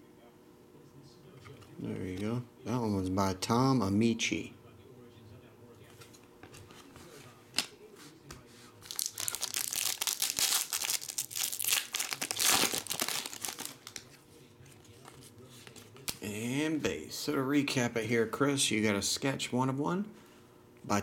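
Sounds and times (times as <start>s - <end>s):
foil wrapper tearing and crinkling: 8.8s - 14.1s.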